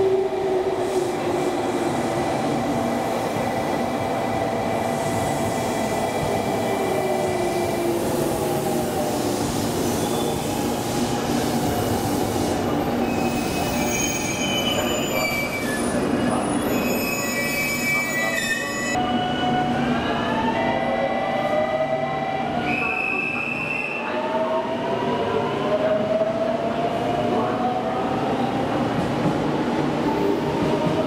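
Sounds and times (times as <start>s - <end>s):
train wheel squeal: 9.9s - 10.6s, 13.0s - 19.1s
train braking: 11.7s - 19.6s.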